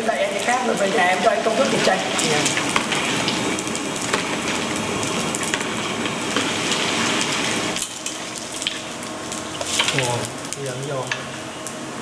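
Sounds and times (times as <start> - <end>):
hot oil sizzling and crackling: 0.0 - 12.0.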